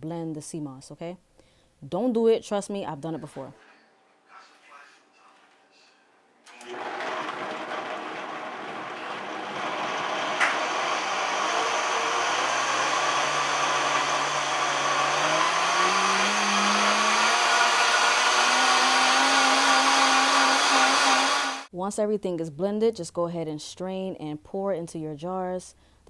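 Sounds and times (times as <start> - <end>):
blender motor running: 6.5 - 21.7.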